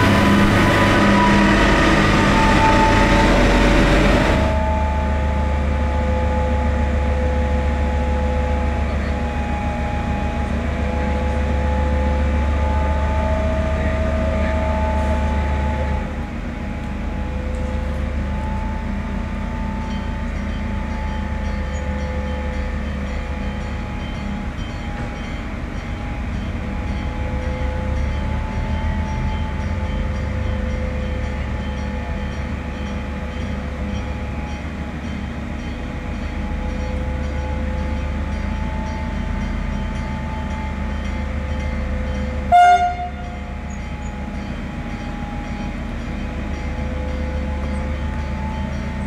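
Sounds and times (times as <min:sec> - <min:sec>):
train horn blast: 0:00.0 - 0:17.7, 0:42.4 - 0:44.2
diesel railcar idling: 0:00.0 - 0:49.0.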